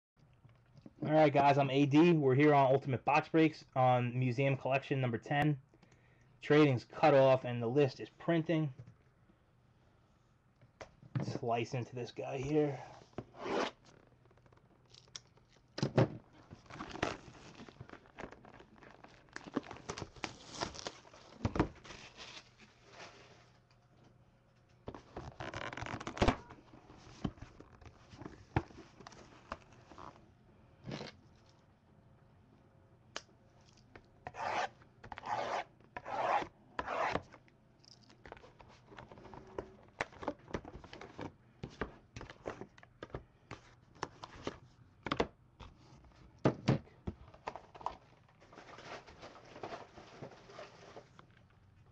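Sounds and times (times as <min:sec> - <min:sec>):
shrink-wrap tearing: 0:16.6 - 0:22.6.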